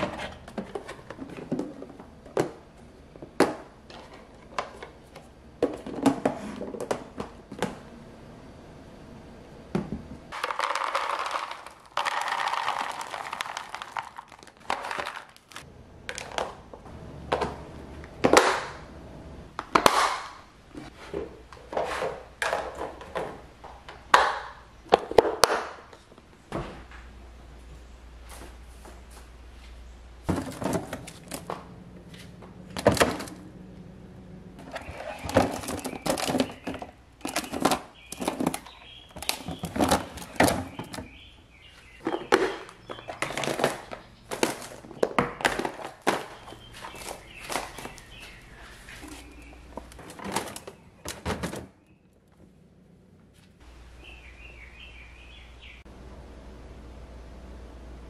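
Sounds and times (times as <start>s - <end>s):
plastic containers knocking: 0.0s - 5.0s, 5.6s - 7.8s, 9.7s - 17.6s, 30.2s - 31.7s, 34.6s - 41.3s, 41.9s - 48.4s, 49.0s - 51.8s
low steady hum: 0.0s - 58.0s
bird chirping: 34.6s - 45.4s, 46.2s - 52.3s, 54.0s - 55.9s.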